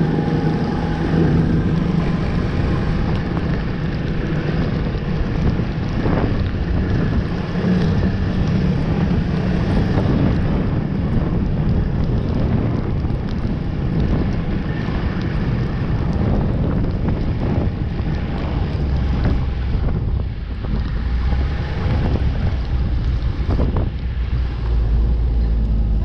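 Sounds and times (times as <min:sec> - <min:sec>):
snowmobile engine running: 0:00.0 - 0:14.2
wind buffeting microphone: 0:00.0 - 0:26.0.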